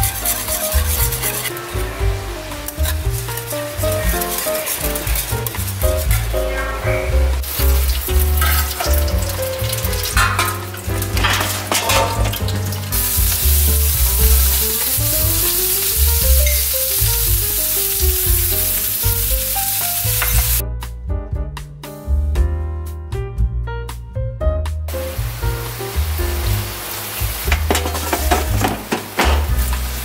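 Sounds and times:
spoon scraping pan: 0.0s - 1.7s, 2.6s - 6.4s, 7.5s - 13.4s, 27.5s - 29.5s
sizzling hiss: 0.0s - 20.6s, 24.9s - 30.0s
background music: 0.0s - 30.0s.

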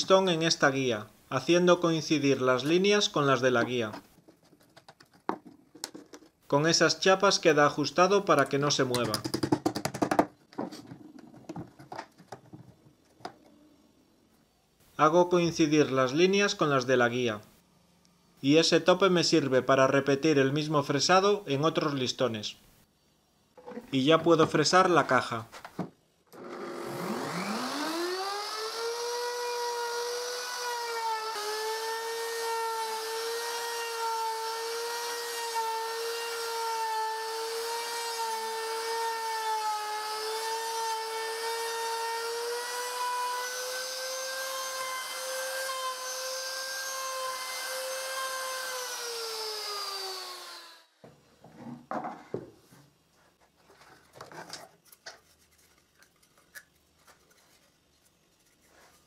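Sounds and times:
knocks and rubbing of wood: 4.2s - 6.4s, 9.0s - 13.4s
router high whine: 26.4s - 33.4s
router spinning down: 26.4s - 34.0s.

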